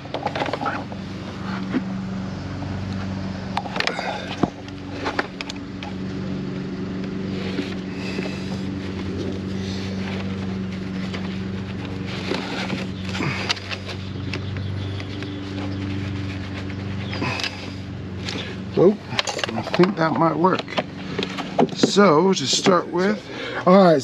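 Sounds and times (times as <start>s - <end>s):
battery cables clicking and scraping: 0.0s - 1.9s, 2.9s - 6.0s, 7.0s - 23.2s
low mechanical hum: 0.0s - 24.0s.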